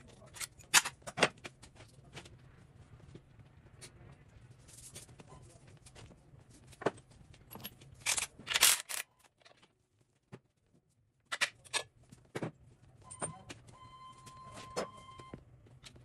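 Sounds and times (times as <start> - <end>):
metal tools clinking: 0.3 - 1.1, 7.5 - 9.1.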